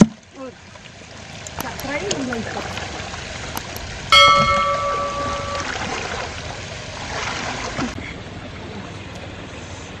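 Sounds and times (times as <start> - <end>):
watery rushing noise: 1.0 - 9.4
bell-like chime: 4.1 - 6.0.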